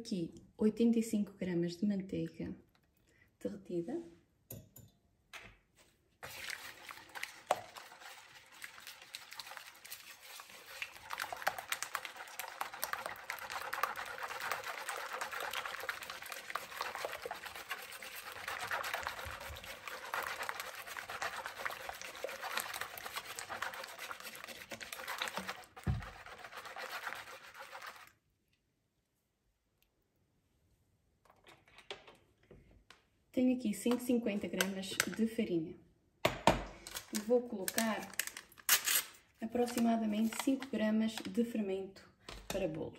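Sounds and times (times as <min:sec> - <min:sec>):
whisk beating eggs in bowl: 0:06.2 - 0:28.2.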